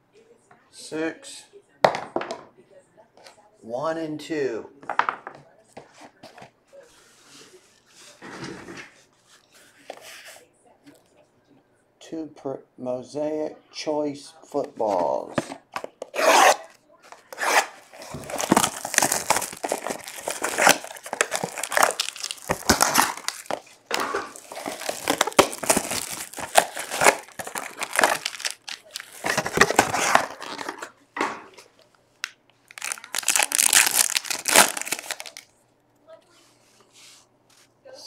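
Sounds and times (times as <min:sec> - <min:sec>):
plastic wrappers crinkling and tearing: 0:16.1 - 0:31.0, 0:31.7 - 0:35.5.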